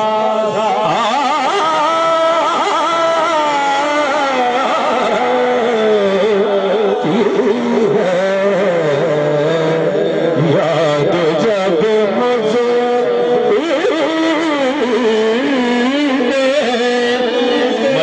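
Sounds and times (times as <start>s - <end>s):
person singing devotional song: 0.0s - 18.0s.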